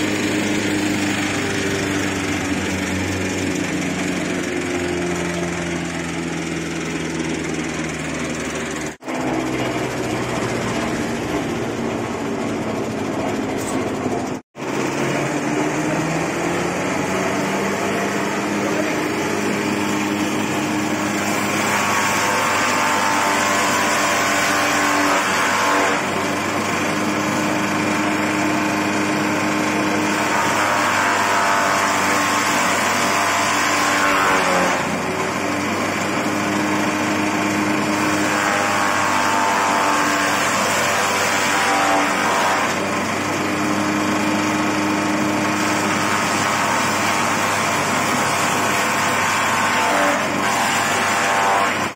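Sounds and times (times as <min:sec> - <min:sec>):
shredder motor humming: 0:00.0 - 0:51.9
harsh chopping noise: 0:43.6 - 0:51.9.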